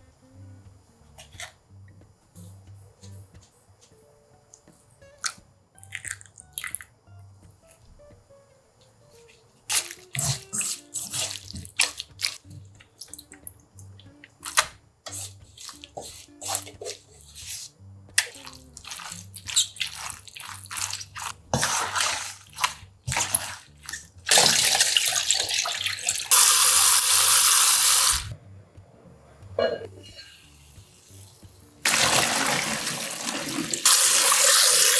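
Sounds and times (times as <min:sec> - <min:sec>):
quiet background music: 0:00.0 - 0:34.9
hands squishing cabbage: 0:09.3 - 0:13.4, 0:14.4 - 0:26.3
spatula scraping a steel bowl: 0:15.1 - 0:17.7
tap water running into a pot: 0:24.3 - 0:28.2, 0:31.8 - 0:34.9.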